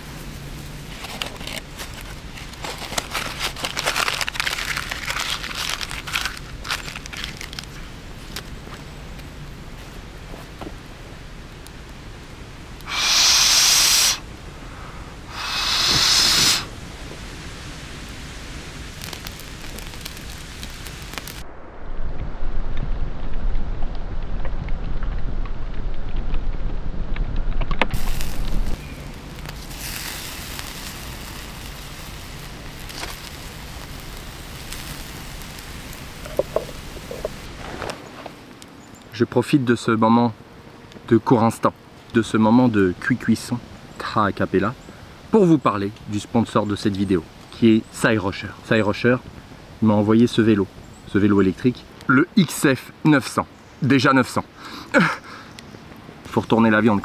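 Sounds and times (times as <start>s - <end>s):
wood fire crackling: 0.0s - 57.0s
meat sizzling on grill: 12.8s - 14.2s, 15.3s - 21.4s, 28.0s - 37.7s
breathy blows through cupped hands: 12.8s - 16.8s
sharp fire pops: 15.3s - 39.1s.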